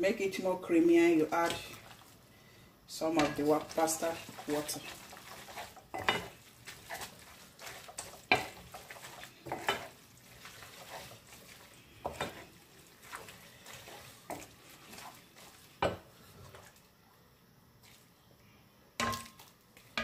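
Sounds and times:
spoon stirring spaghetti: 1.1 - 2.2, 3.0 - 16.8.

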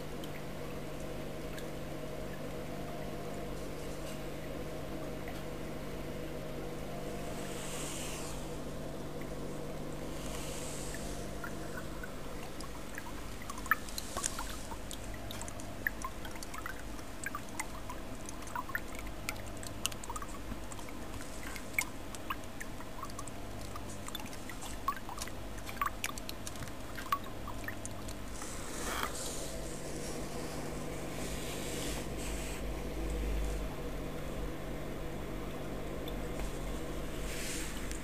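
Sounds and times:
water trickling and dripping: 0.0 - 5.7, 8.5 - 30.1
steady low hum: 0.0 - 38.0.

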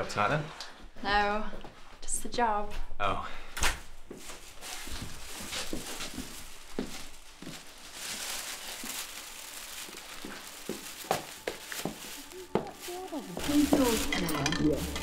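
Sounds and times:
plastic bag rustling: 3.8 - 15.0.

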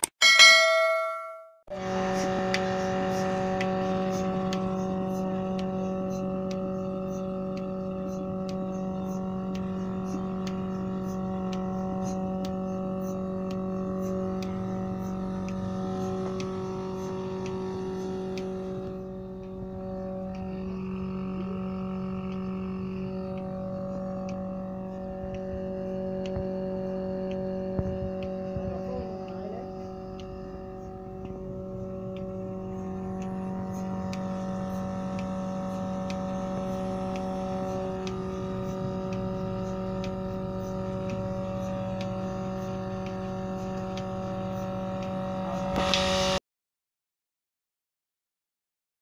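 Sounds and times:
electric motor and pump humming: 0.0 - 46.4
faint regular ticking: 3.6 - 45.2.

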